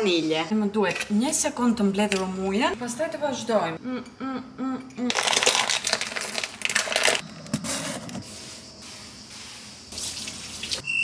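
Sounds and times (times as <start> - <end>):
cloth wiping countertop: 7.6 - 10.8.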